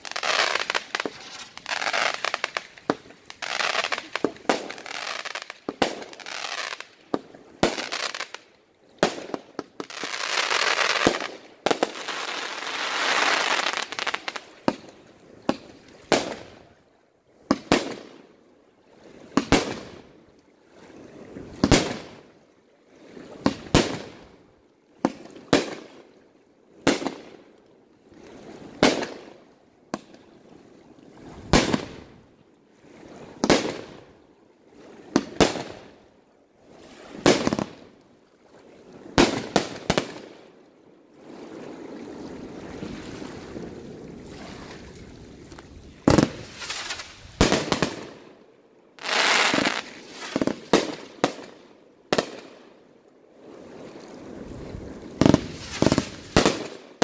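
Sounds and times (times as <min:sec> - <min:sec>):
fireworks popping and crackling: 0:00.0 - 0:06.9, 0:09.0 - 0:14.4, 0:45.6 - 0:48.2, 0:49.0 - 0:51.5, 0:55.1 - 0:57.0.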